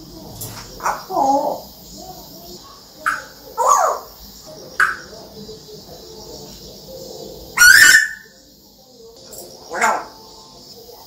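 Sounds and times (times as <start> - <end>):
parrot calling: 0.5 - 5.4, 6.8 - 8.4, 9.7 - 10.4.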